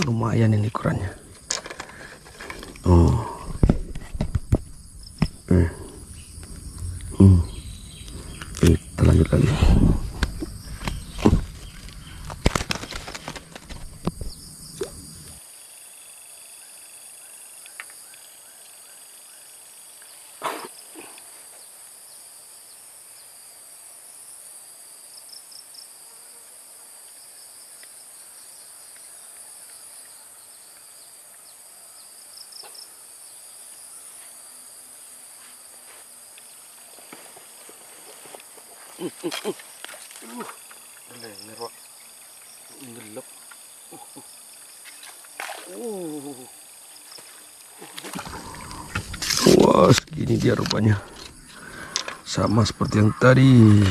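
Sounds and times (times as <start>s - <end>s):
insects chirring: 0.0s - 53.9s
knocks and rustles: 3.4s - 5.5s, 8.5s - 14.4s.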